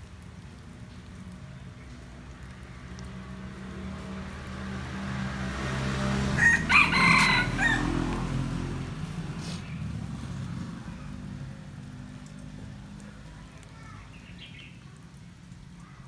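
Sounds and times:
rooster crowing: 6.3 - 8.4.

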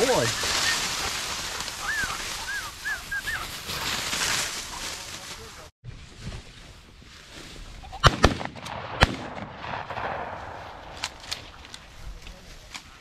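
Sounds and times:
shotgun shots: 8.0 - 11.7.

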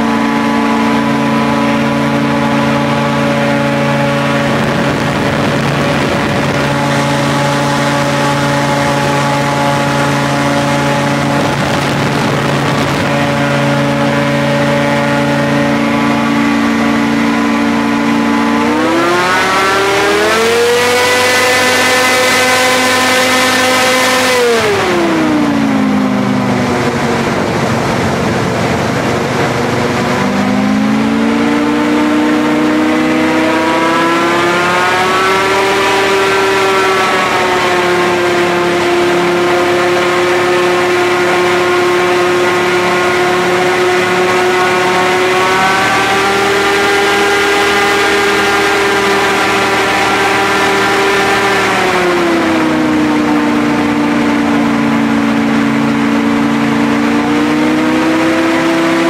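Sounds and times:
airboat engine and propeller: 0.0 - 59.0
rush of air and water: 0.0 - 59.0.

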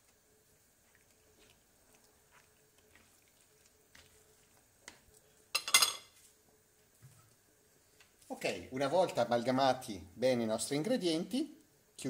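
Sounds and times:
spatula stirring food in pan: 0.0 - 7.4.

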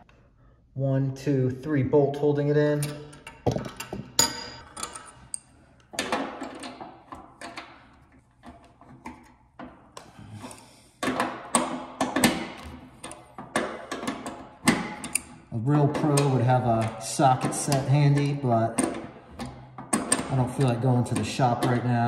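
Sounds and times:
wrench clicking on metal bolts: 2.8 - 7.8, 10.5 - 22.0.

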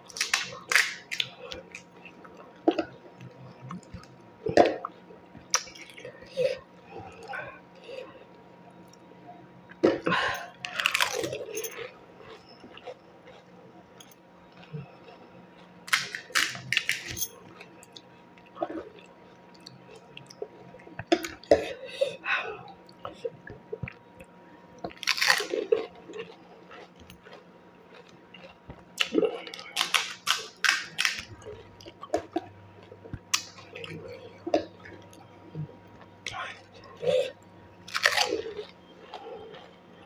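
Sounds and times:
fried shell crunching and cracking: 0.0 - 3.0, 10.6 - 13.5, 15.8 - 17.8, 24.8 - 32.4, 37.8 - 38.8
chewing and wet mouth sounds: 0.0 - 40.0.

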